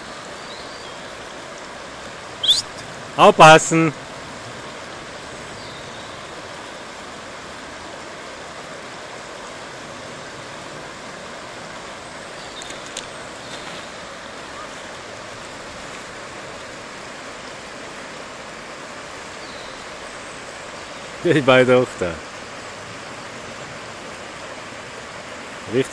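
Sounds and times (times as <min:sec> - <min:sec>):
river flowing over stones: 0:00.0 - 0:25.9.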